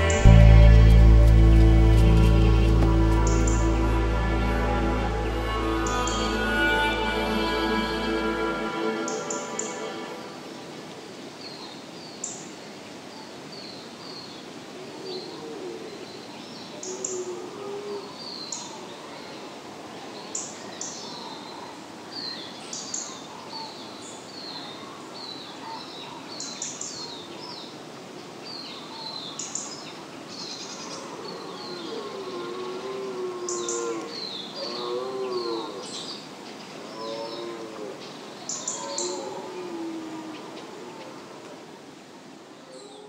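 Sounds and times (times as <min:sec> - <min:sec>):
steady background hiss: 0:00.0 - 0:43.0.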